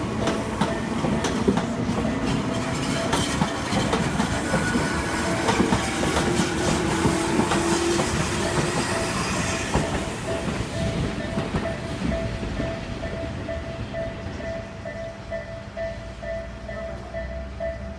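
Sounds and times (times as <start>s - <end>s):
train wheels clattering on rail joints: 0.0s - 17.2s
level crossing warning bell: 0.0s - 17.9s
train wheel squeal: 0.7s - 15.0s.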